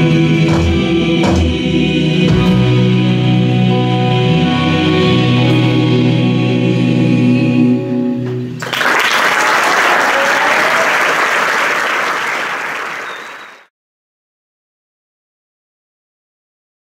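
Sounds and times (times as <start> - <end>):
choir and band holding a chord: 0.0 - 8.5
audience applause: 8.6 - 13.7.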